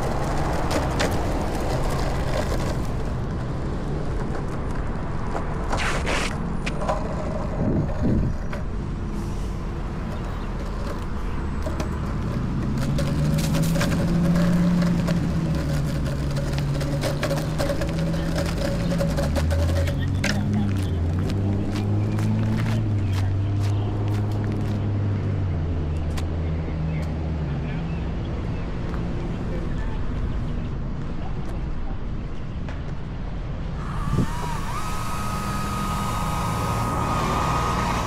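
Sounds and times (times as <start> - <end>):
road traffic rumble: 0.0 - 38.0
vehicle engine passing: 5.9 - 26.6, 33.8 - 38.0.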